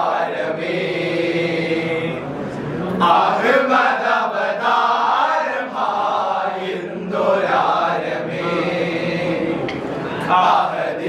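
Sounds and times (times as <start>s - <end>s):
men chanting in chorus: 3.0s - 11.0s.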